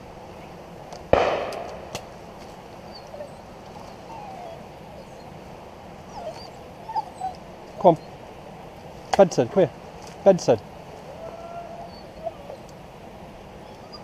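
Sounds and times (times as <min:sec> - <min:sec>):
shotgun shot echoing: 0:01.1 - 0:02.1
faint sharp crack: 0:01.2 - 0:02.1.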